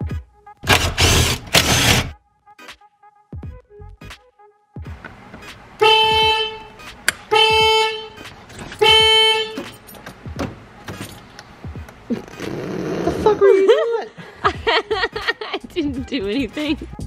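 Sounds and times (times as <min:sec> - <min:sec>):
car horn blasts: 0:05.8 - 0:09.9.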